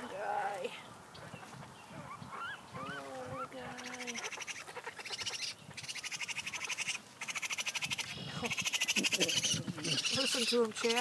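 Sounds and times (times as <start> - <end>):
baby raccoons crying: 2.0 - 11.0
high-pitched chattering: 3.7 - 11.0.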